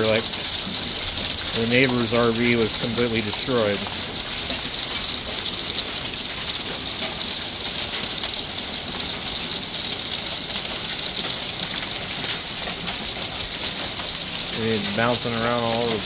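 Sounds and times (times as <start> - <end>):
hail and rain falling hard: 0.0 - 16.0
hail pellets ticking on surfaces: 0.0 - 16.0.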